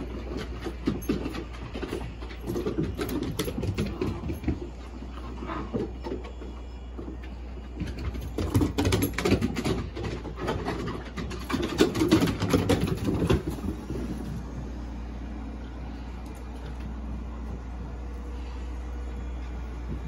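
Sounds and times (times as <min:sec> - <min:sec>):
puppy claws pattering on wood: 0:00.0 - 0:14.3
steady low rumble: 0:13.3 - 0:20.0.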